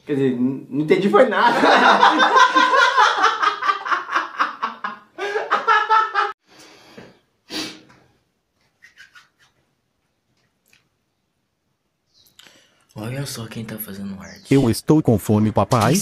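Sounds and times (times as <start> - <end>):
man laughing hard: 1.5 - 6.3.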